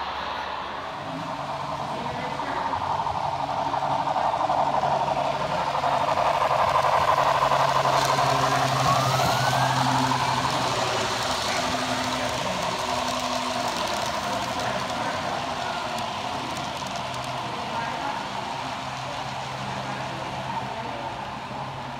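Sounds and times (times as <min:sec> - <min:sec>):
model trains rumbling on track: 0:00.0 - 0:21.9.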